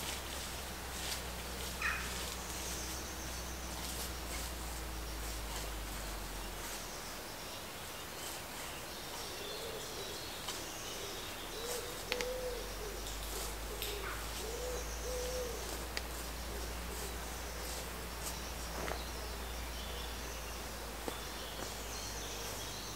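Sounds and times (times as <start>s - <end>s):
small birds chirping: 0.0s - 22.9s
pigeon cooing: 9.2s - 10.3s, 10.9s - 18.1s.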